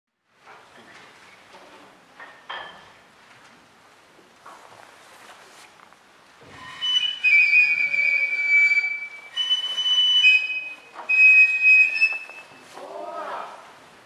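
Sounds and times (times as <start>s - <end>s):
bamboo flute long high notes: 6.5s - 13.4s.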